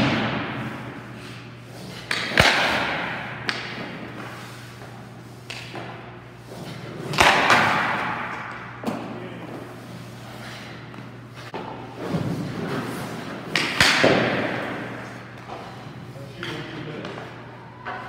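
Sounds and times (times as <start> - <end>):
hockey pucks striking: 0.0 - 9.7, 10.9 - 18.0
steady low hum: 0.0 - 18.0.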